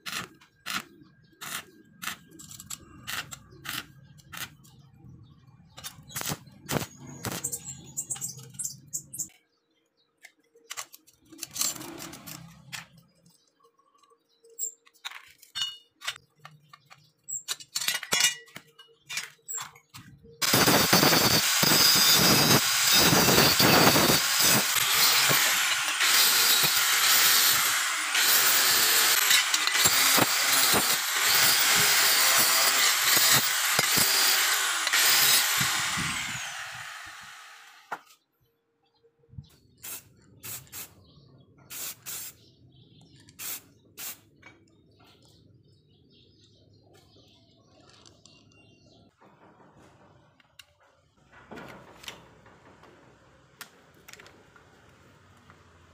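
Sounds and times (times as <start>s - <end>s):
angle grinder grinding metal: 20.4s - 38.0s.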